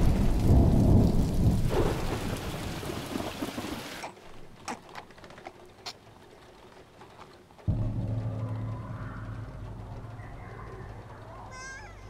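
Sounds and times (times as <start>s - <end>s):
thunder rolling: 0.0s - 3.9s, 7.7s - 12.0s
heavy rain: 0.0s - 12.0s.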